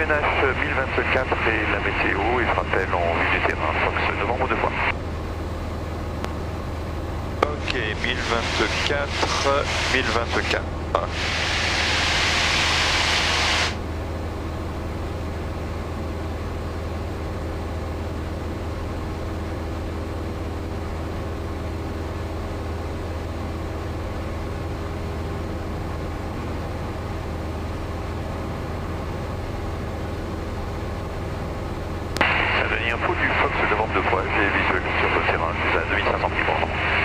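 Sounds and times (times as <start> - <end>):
aircraft engine and propeller droning: 0.0 - 37.0
loud hiss: 11.1 - 13.8.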